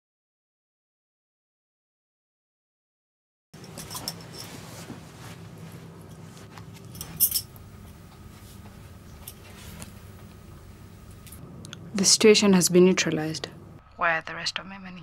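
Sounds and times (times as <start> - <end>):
small metallic clinks: 3.6 - 4.6, 6.8 - 7.6
light rustling: 3.6 - 10.4
low steady hum: 3.6 - 15.0.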